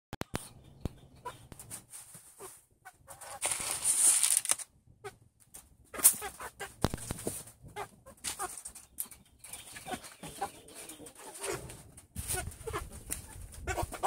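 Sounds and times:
sharp scuffs and rustles: 0:01.4 - 0:04.6
chickens clucking softly: 0:05.9 - 0:14.0.

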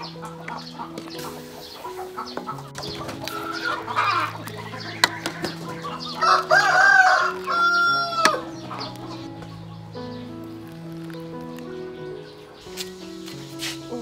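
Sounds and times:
chickens clucking: 0:00.0 - 0:09.9
background music with held notes: 0:00.0 - 0:14.0
rooster crowing: 0:05.8 - 0:08.6.

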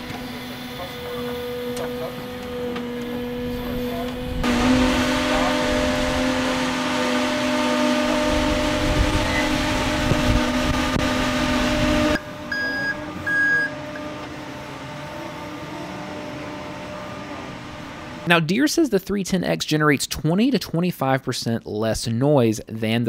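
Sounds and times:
electric machine hum: 0:00.0 - 0:18.3
backup alarm beeps: 0:12.5 - 0:14.0.

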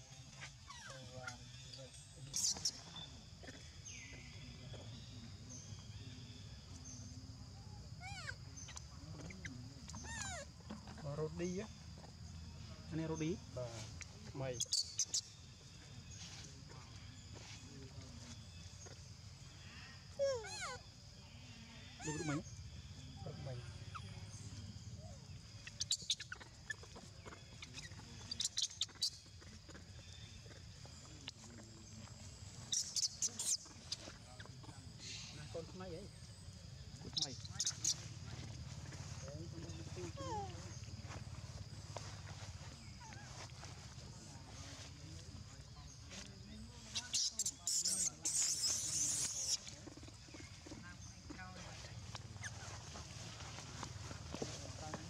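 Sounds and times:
insects droning: 0:00.0 - 0:55.0
macaques squeaking: 0:00.3 - 0:03.8, 0:07.9 - 0:11.0, 0:14.6 - 0:17.0, 0:18.4 - 0:21.0, 0:21.8 - 0:22.6, 0:23.8 - 0:35.6, 0:36.9 - 0:44.4, 0:46.6 - 0:50.8, 0:51.9 - 0:54.6
monkey squealing: 0:09.9 - 0:10.5, 0:20.2 - 0:20.8, 0:22.0 - 0:22.4, 0:47.0 - 0:49.7.

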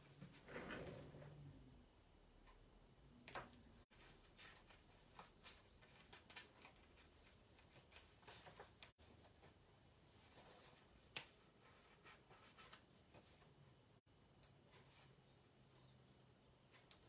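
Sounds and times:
faint small taps and rustles: 0:03.4 - 0:13.6.

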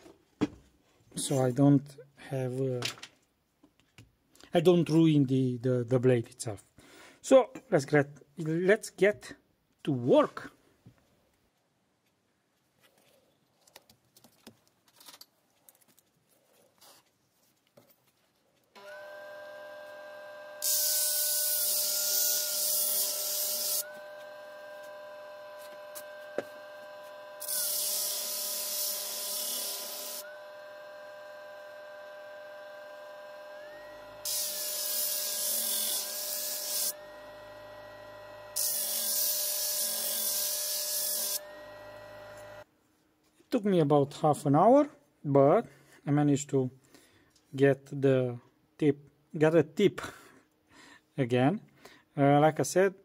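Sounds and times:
disc sander motor whine: 0:18.8 - 0:42.6
knife grinding on sanding disc: 0:19.8 - 0:30.4, 0:33.9 - 0:42.6.

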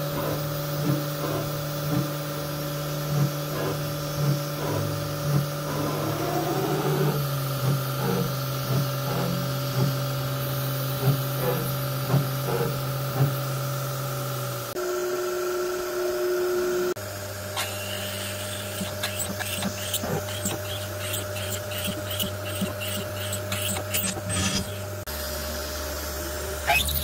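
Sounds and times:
router spindle hum: 0:00.0 - 0:27.0
drill cutting into metal: 0:17.5 - 0:25.1.

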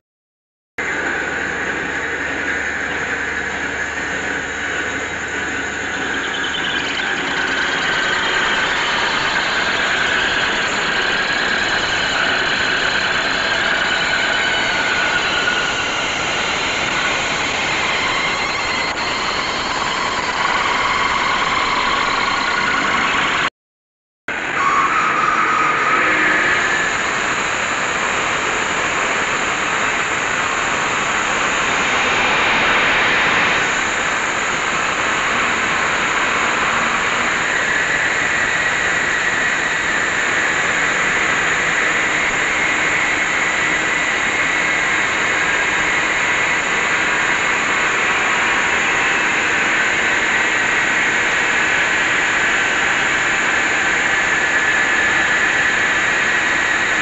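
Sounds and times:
lathe cutting metal: 0:00.8 - 0:23.5, 0:24.3 - 0:57.0
thin high whine: 0:00.8 - 0:23.5, 0:24.3 - 0:57.0.

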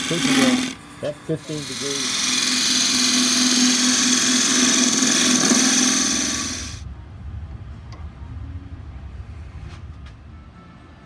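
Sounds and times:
lathe motor hum: 0:00.0 - 0:06.8
lathe tool cutting wood: 0:00.0 - 0:06.8.

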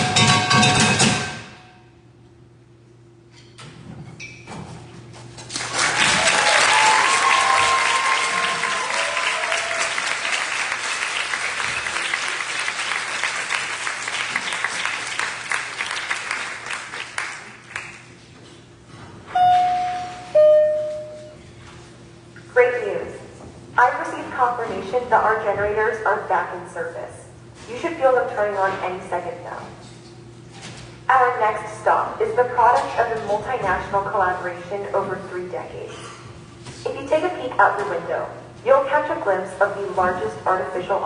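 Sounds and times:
audience applauding: 0:05.5 - 0:18.1
cheers and whoops: 0:06.0 - 0:10.5.

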